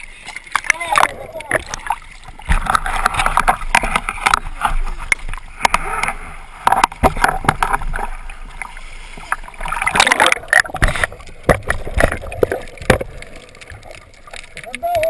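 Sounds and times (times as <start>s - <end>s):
water sloshing and splashing: 0.0s - 15.0s
sharp underwater knocks: 0.5s - 8.1s, 9.7s - 14.0s.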